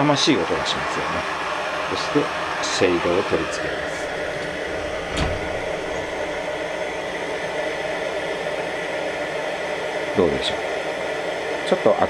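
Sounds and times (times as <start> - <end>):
pressure lamp hissing: 0.3 - 12.0
glass shade knock: 3.9 - 6.5.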